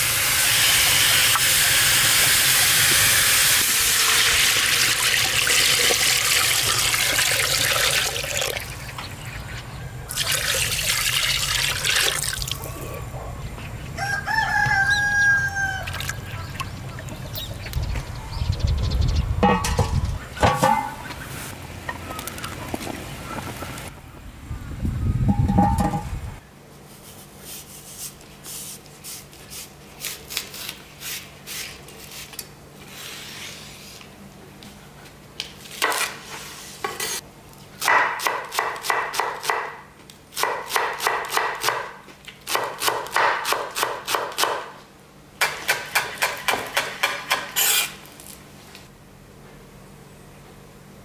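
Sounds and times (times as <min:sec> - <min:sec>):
iron lid scraping: 0:19.4 - 0:21.1, 0:25.3 - 0:26.2.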